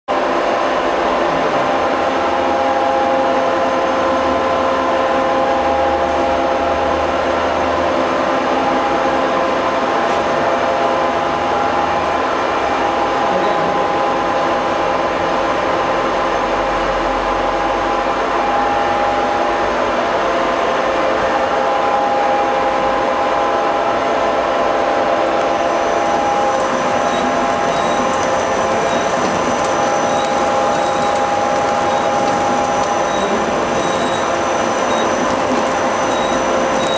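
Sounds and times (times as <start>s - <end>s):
packaging machine whirring: 25.4s - 36.9s
whining drive tones: 25.6s - 36.9s.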